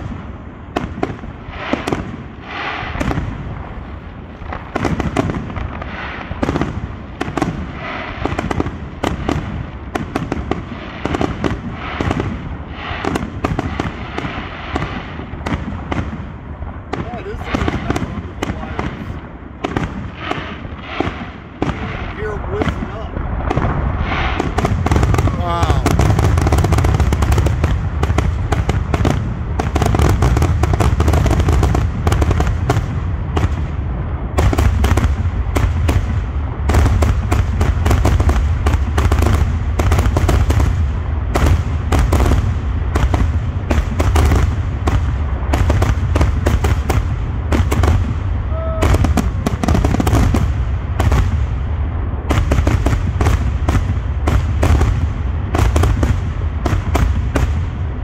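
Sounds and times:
fireworks bursting: 0:00.0 - 0:58.0.

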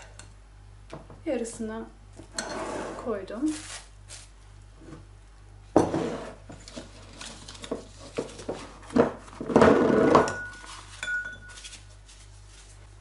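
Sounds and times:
plastic crinkling and rustling: 0:03.4 - 0:04.4, 0:10.5 - 0:12.9.

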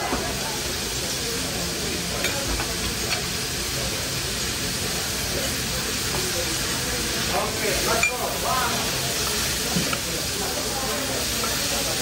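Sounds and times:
beef sizzling on griddle: 0:00.0 - 0:12.0.

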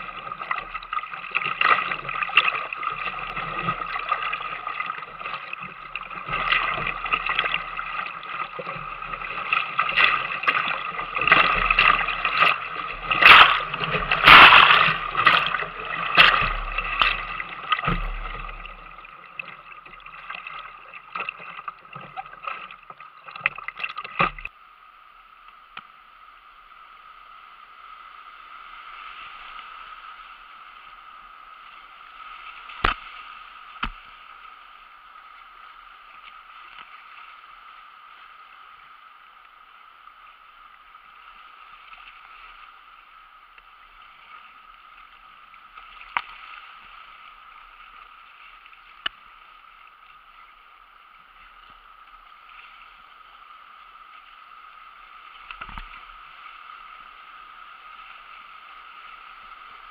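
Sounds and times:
fast river water rushing: 0:00.0 - 0:24.5
whitewater splashing against kayak: 0:00.0 - 0:24.5.

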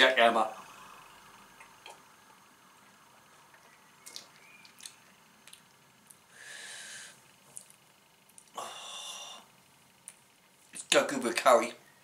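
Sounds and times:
mouth clicks: 0:03.6 - 0:06.2, 0:07.6 - 0:08.6
breath: 0:06.3 - 0:07.2, 0:08.5 - 0:09.5.

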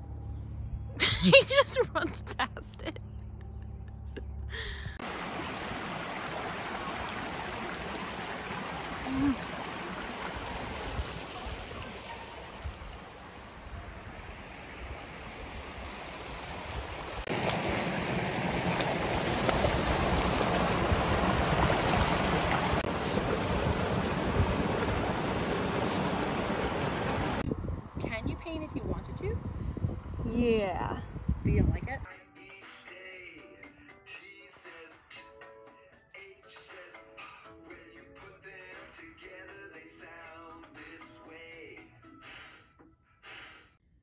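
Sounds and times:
small waterfalls pouring into pool: 0:05.0 - 0:13.4, 0:14.7 - 0:27.4
creek flowing over stones: 0:05.0 - 0:27.4.

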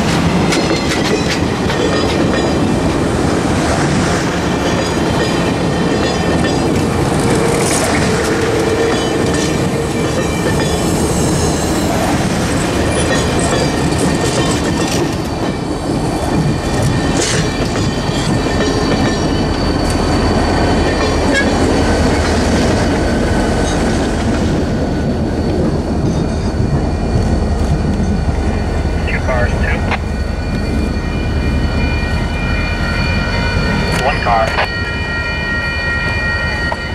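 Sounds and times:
train wheels clicking over rail joints: 0:12.4 - 0:24.6.

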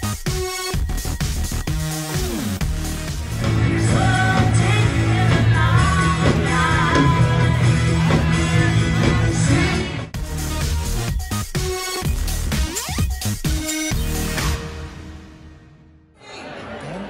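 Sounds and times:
pop-rock band playing: 0:02.7 - 0:10.8
women singing: 0:03.6 - 0:09.9.

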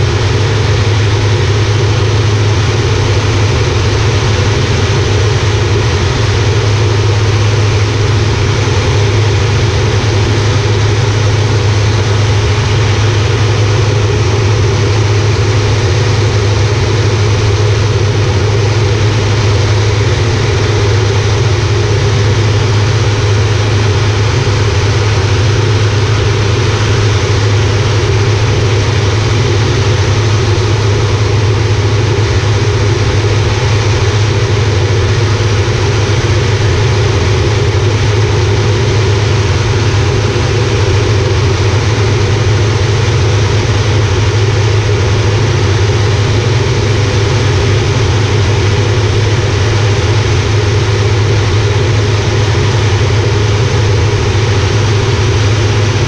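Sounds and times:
turboprop engine in flight: 0:00.0 - 0:56.0
wide rushing noise: 0:00.0 - 0:56.0.

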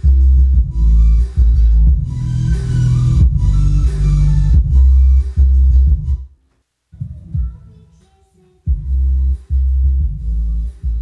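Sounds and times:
bass-heavy electronic music: 0:00.0 - 0:06.2, 0:08.7 - 0:11.0.

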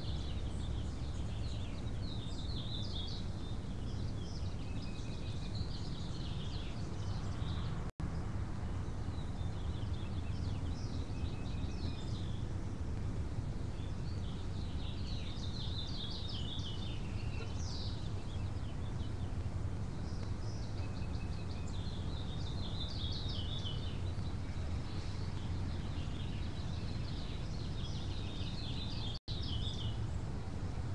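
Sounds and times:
birds chirping: 0:00.0 - 0:30.9
low outdoor hum: 0:00.0 - 0:30.9.

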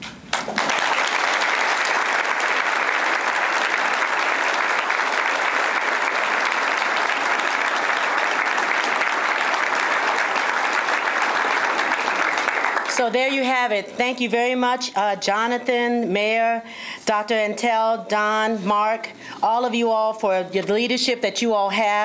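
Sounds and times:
crowd clapping: 0:00.3 - 0:13.4.

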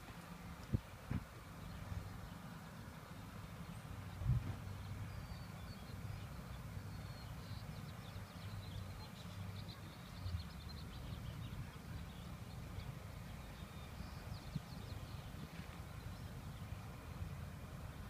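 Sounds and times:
wind rumble on microphone: 0:00.6 - 0:01.5, 0:04.1 - 0:04.8, 0:14.0 - 0:16.3.

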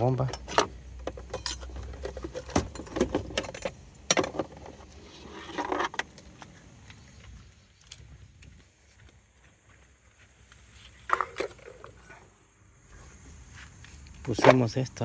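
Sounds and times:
metallic clinks and knocks: 0:00.2 - 0:04.7.

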